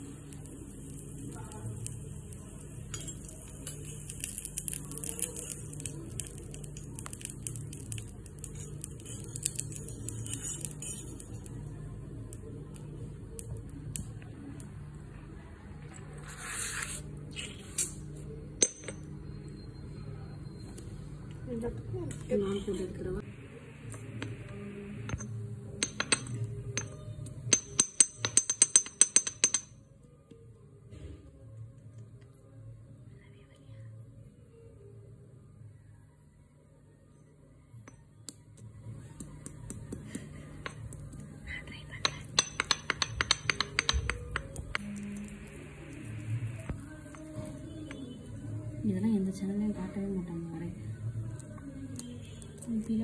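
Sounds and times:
metal spatula clicking and scraping: 0:07.0 - 0:11.6.

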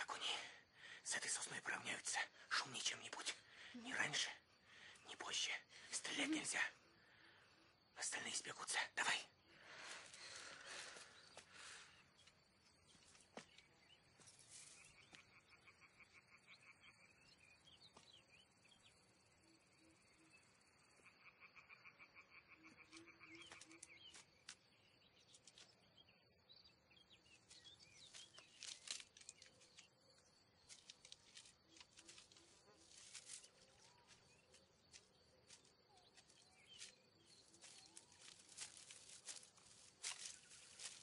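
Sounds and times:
rustles in undergrowth: 0:12.8 - 0:15.2, 0:27.4 - 0:41.0.

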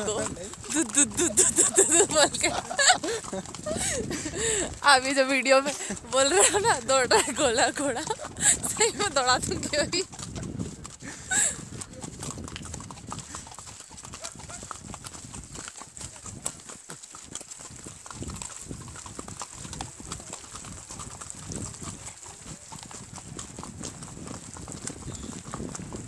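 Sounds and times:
horse hooves clip-clopping: 0:00.0 - 0:26.0.

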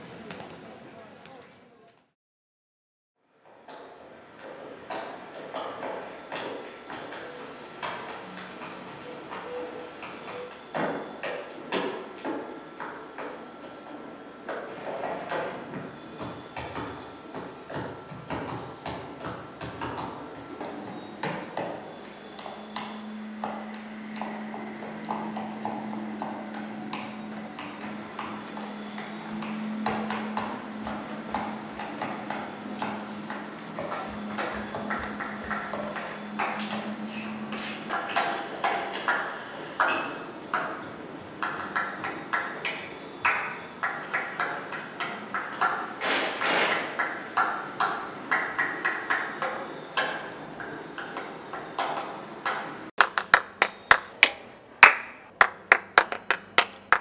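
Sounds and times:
hands clapping: 0:53.0 - 0:57.0.

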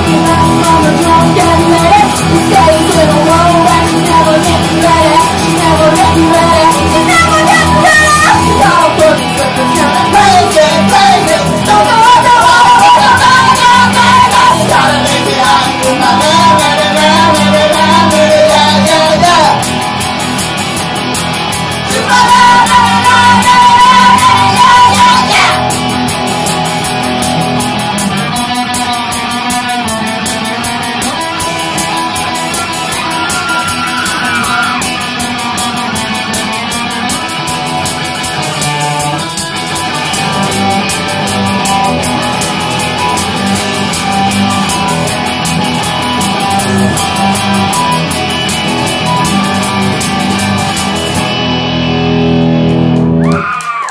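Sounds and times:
woman singing: 0:00.0 - 0:19.6, 0:21.9 - 0:25.7
electric guitar: 0:00.0 - 0:53.9.

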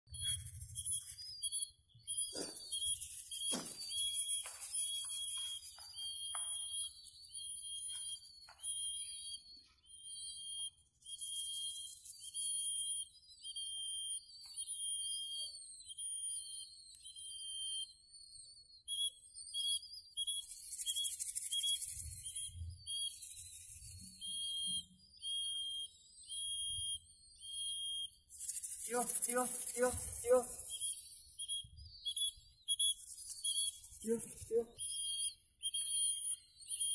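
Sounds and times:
high whistle blasts: 0:00.2 - 0:18.1, 0:23.8 - 0:28.2.

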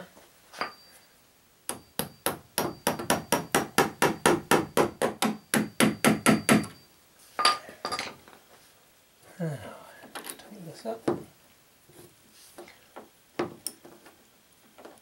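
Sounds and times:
hammer tapping metal anchor: 0:01.7 - 0:06.8.

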